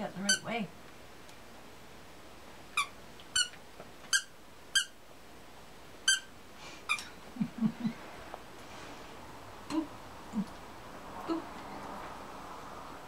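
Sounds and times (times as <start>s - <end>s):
squeaky dog toy squeaking: 0.3s - 0.5s, 2.8s - 5.0s, 6.0s - 6.3s, 6.9s - 7.1s.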